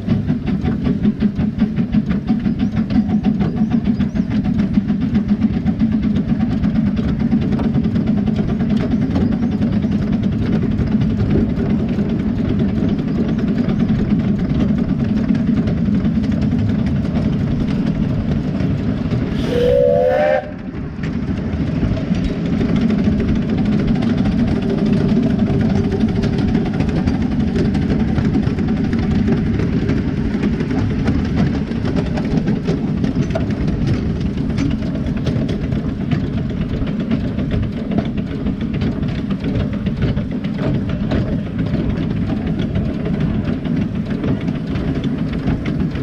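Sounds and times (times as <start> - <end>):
steam locomotive rumbling: 0.0 - 46.0
steam whistle blast: 19.4 - 20.6.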